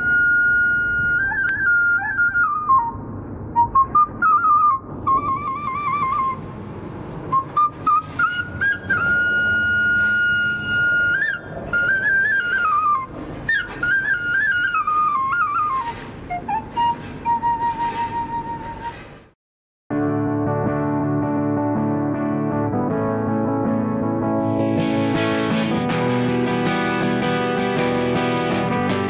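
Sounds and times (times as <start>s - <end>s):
wooden flute folk melody: 0.0s - 6.6s, 7.2s - 19.2s.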